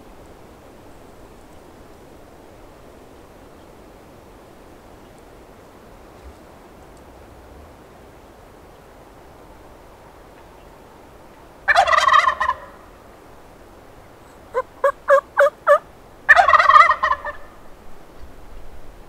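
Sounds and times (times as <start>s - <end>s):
turkey yelps: 11.7s - 12.8s, 14.3s - 17.5s
turkey gobbling: 11.7s - 12.9s, 14.3s - 17.6s.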